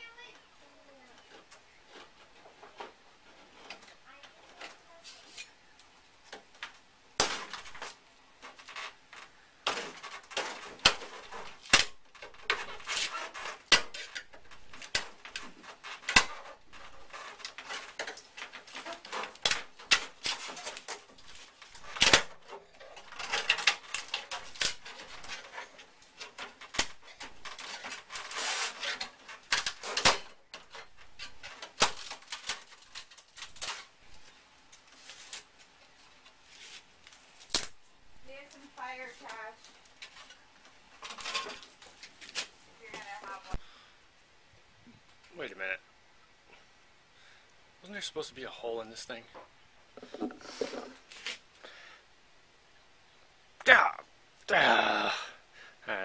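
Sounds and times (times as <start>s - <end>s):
hand tools scraping sheet metal: 9.7s - 33.9s.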